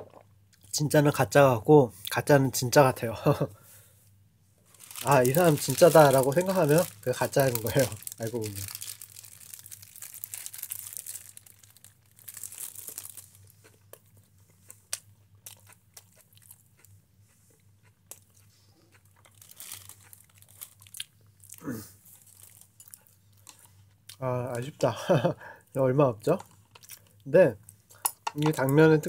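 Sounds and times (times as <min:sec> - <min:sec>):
plastic bag crinkling: 0:04.7 - 0:13.6, 0:19.3 - 0:23.5.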